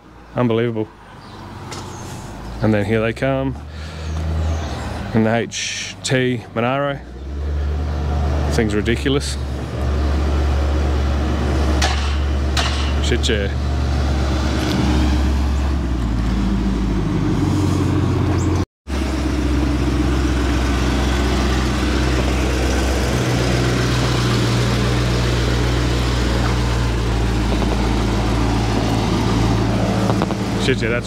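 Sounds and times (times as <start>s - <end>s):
car engine rumbling at idle: 18.4s - 31.0s.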